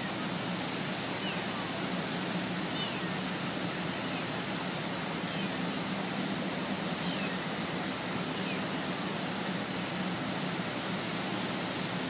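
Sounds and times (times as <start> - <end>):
cat meowing faintly: 2.7 - 3.2.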